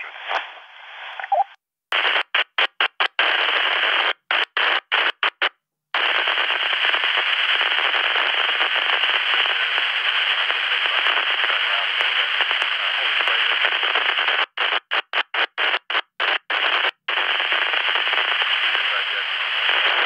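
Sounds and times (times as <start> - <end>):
radio squelch bursts: 0.0 - 5.4, 6.0 - 20.0
garbled radio transmission: 0.0 - 20.0
radio static hiss: 0.0 - 20.0.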